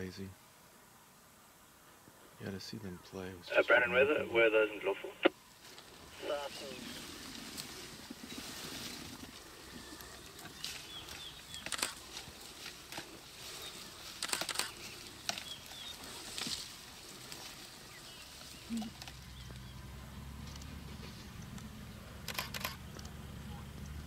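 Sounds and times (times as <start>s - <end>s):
bird chirps: 9.6s - 11.9s, 14.5s - 16.2s.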